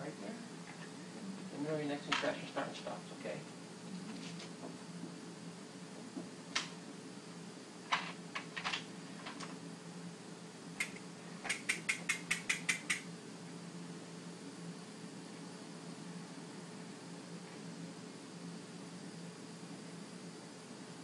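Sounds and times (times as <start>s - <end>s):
sharp clicks: 10.8s - 13.1s.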